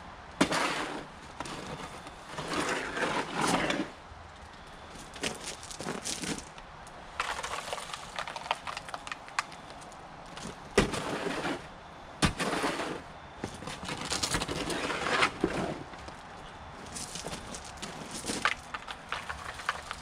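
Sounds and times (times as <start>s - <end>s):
shovel scraping wet concrete: 0.4s - 3.9s, 10.8s - 13.1s, 13.8s - 15.9s.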